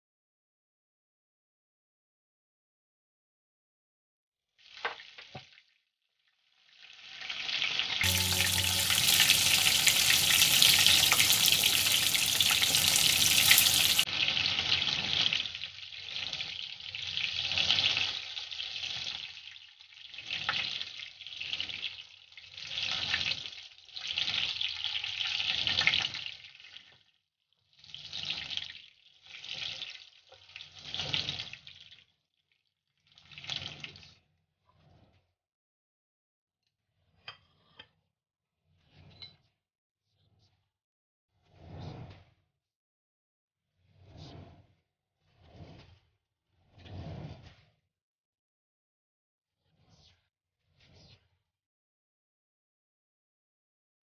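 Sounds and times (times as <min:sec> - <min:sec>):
fish frying in hot oil: 0:06.5 - 0:32.1.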